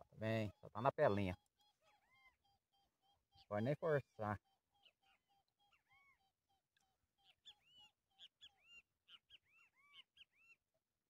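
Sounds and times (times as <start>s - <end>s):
bird chirps: 0.0s - 10.8s.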